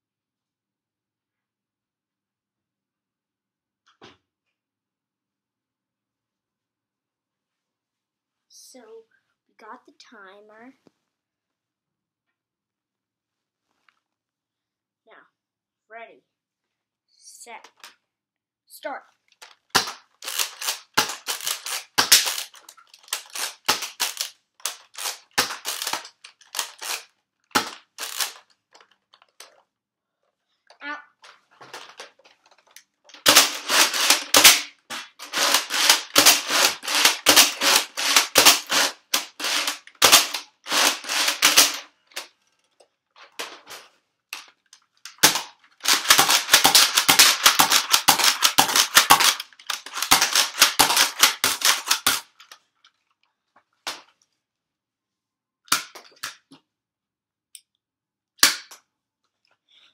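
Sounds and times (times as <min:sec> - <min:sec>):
foam dart blaster shots: 0:33.2 - 0:41.8, 0:45.2 - 0:52.1.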